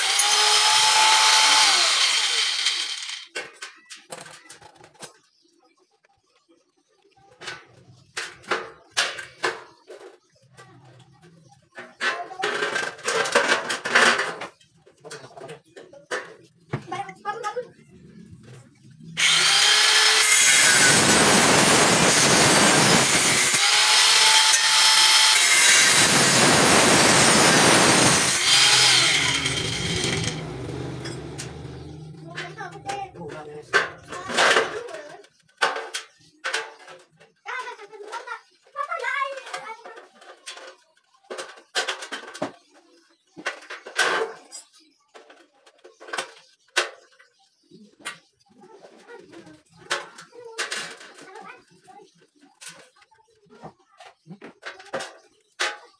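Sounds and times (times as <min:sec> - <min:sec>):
power cutter cutting steel: 0:00.0 - 0:03.3, 0:19.2 - 0:32.2
metal rattling scrape: 0:07.4 - 0:16.6, 0:18.0 - 0:37.0.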